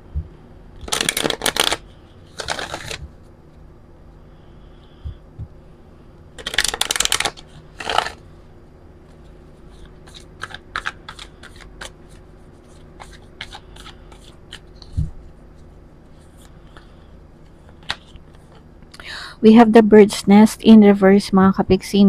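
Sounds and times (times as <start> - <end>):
cards being shuffled: 0.8 - 3.2, 6.4 - 8.2, 9.1 - 15.3, 17.5 - 18.6.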